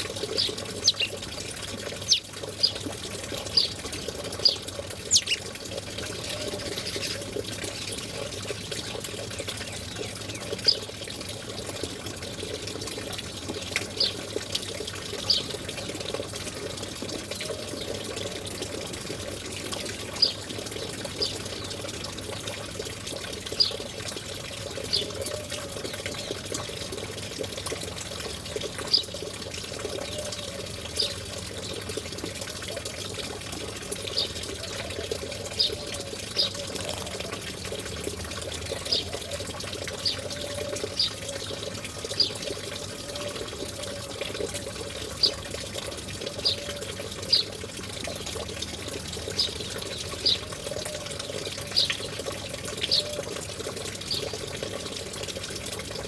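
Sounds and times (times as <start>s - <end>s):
running water: 0.0s - 56.0s.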